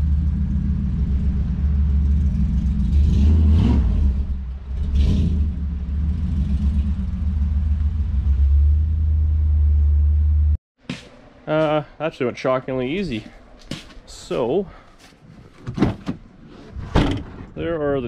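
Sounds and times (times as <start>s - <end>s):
car engine rumbling and revving: 0.0s - 10.6s.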